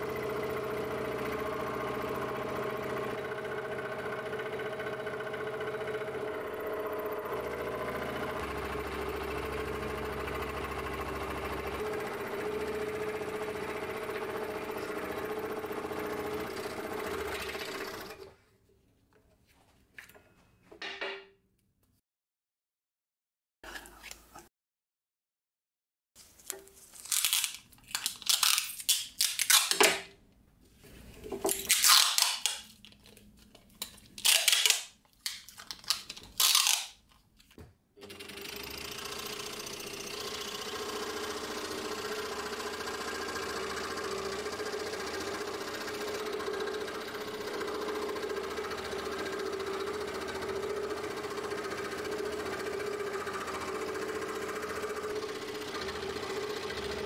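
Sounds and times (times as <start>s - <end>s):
scroll saw cutting wood: 0.0s - 18.4s, 38.0s - 57.0s.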